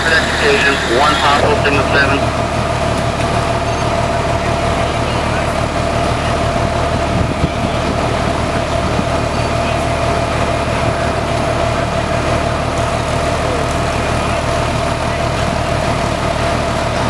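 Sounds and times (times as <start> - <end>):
mid-pitched hum: 0.0 - 2.9
large engine idling: 0.0 - 17.0.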